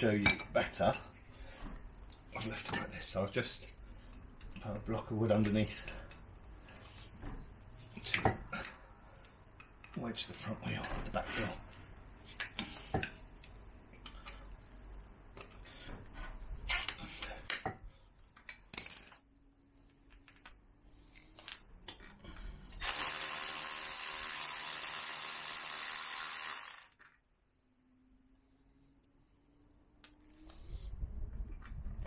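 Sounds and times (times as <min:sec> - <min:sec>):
cordless power ratchet running: 0:22.8 - 0:27.0.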